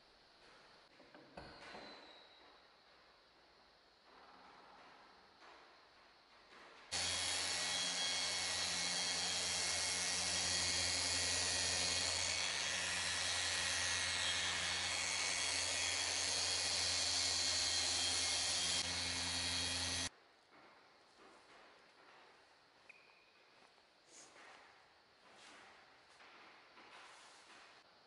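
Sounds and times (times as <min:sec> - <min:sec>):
mini polisher running: 0:06.9 - 0:20.1.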